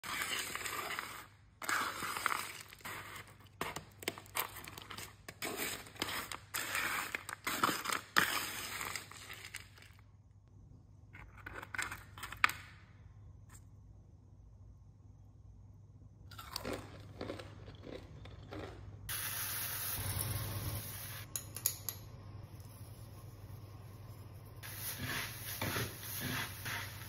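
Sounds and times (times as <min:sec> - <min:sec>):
granola crunching and crackling: 0:16.3 - 0:18.9.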